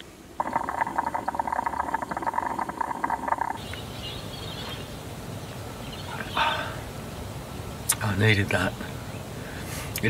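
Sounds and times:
kettle water bubbling: 0:00.0 - 0:03.6
faint steady background noise: 0:00.0 - 0:10.0.

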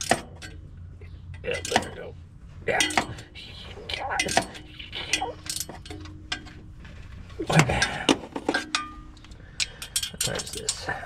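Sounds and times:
metal tools clinking: 0:00.0 - 0:02.1, 0:02.7 - 0:11.0
metallic clatter of strikes: 0:02.7 - 0:03.3.

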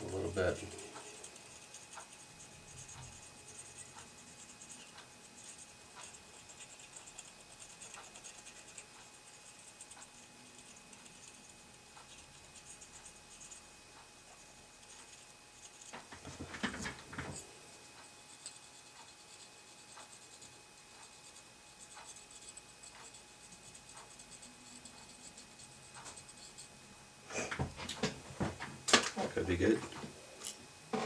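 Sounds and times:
handling noise: 0:27.5 - 0:31.0.

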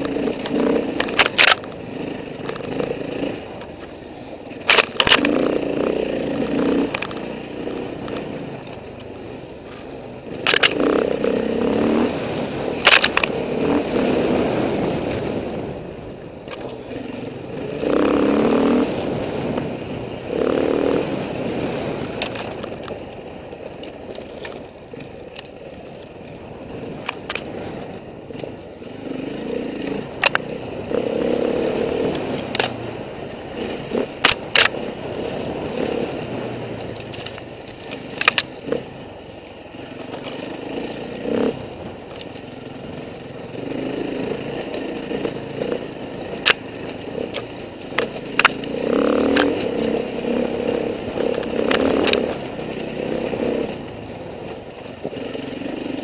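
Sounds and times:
dirt bike engine revving: 0:00.0 - 0:03.6, 0:04.5 - 0:08.6, 0:10.1 - 0:15.8, 0:16.7 - 0:22.8, 0:26.5 - 0:37.2, 0:37.9 - 0:56.0.

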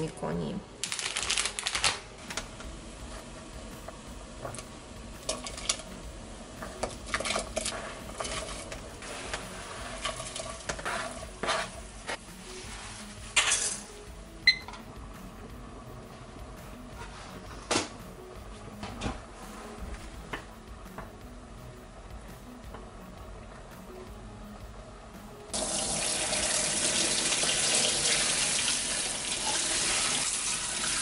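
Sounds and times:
vegetables scraped off cutting board: 0:10.1 - 0:11.8.

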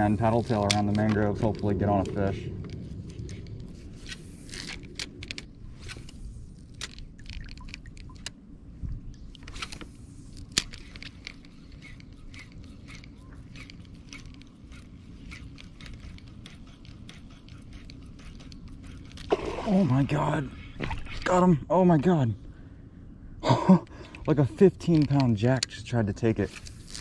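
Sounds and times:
reel clicks and ticks: 0:00.0 - 0:08.4, 0:09.3 - 0:19.3, 0:24.1 - 0:27.0
steady low rumble: 0:00.0 - 0:16.4.

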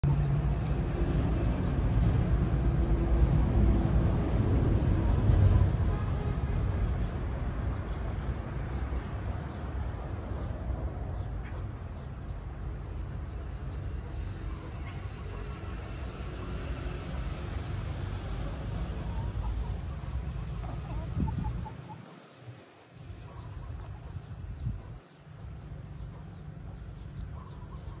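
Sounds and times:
chickens clucking: 0:18.3 - 0:28.0.

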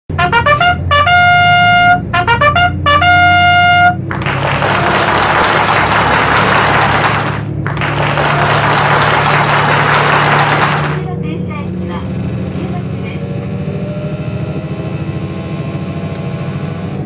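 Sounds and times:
trumpet fanfare: 0:00.1 - 0:07.3
diesel railcar running: 0:00.1 - 0:15.1.

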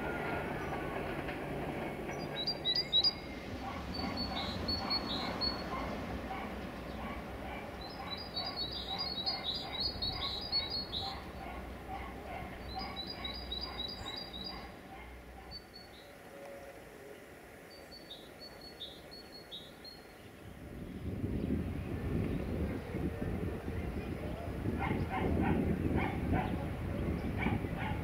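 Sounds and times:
small songbird singing: 0:02.1 - 0:06.0, 0:07.8 - 0:11.3, 0:12.6 - 0:14.7.

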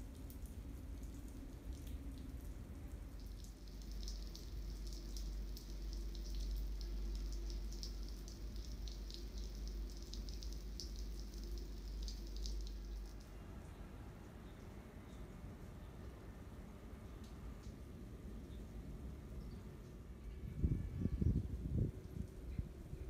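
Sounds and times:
light rain pattering and dripping: 0:00.0 - 0:23.0
crackling ticks: 0:03.2 - 0:13.3
steady low rumble: 0:18.0 - 0:23.0.

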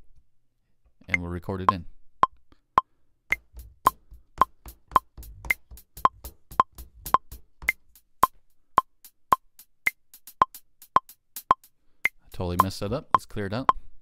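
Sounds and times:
metronome clicking: 0:01.1 - 0:13.8
closed hi-hat hits: 0:03.3 - 0:13.8.

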